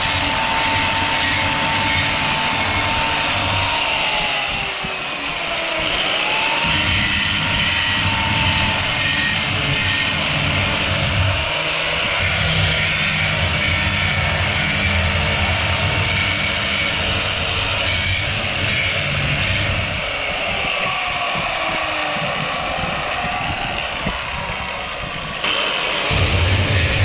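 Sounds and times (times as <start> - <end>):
angle grinder sanding metal: 0.0 - 27.0.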